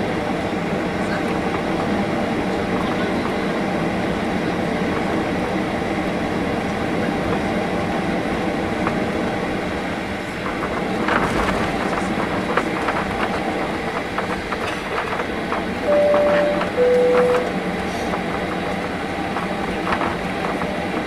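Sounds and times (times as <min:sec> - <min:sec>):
jet engines humming: 0:14.4 - 0:21.0.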